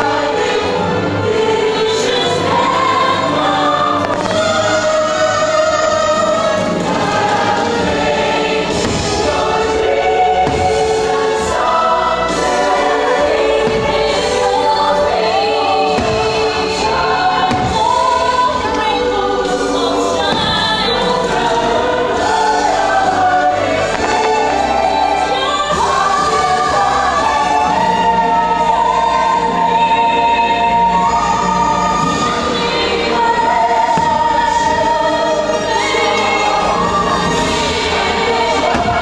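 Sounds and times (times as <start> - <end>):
choir singing with music: 0.0 - 39.0
fireworks popping: 4.0 - 4.8, 8.7 - 9.4, 23.8 - 25.3.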